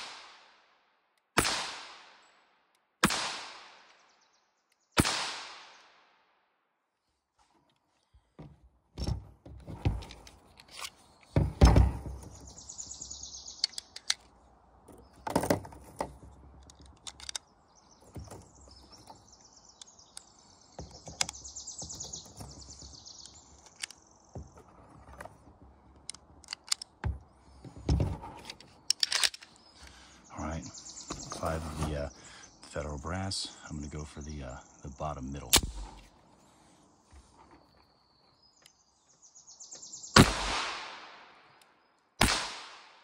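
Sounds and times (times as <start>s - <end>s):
birds chirping: 7.0s - 40.7s
pistol handling thunks and clicks: 8.4s - 12.4s, 13.6s - 17.5s, 26.0s - 29.6s, 35.5s - 36.0s.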